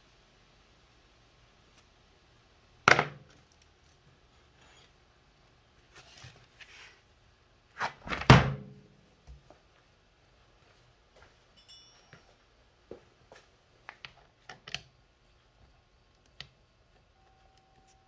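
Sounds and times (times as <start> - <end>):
metallic clink: 11.5 - 12.3.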